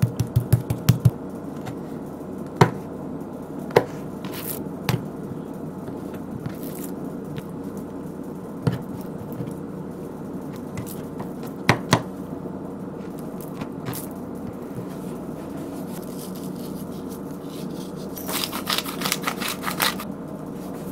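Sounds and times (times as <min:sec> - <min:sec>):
steady background noise: 0:00.0 - 0:20.9
knife scraping: 0:14.8 - 0:20.1.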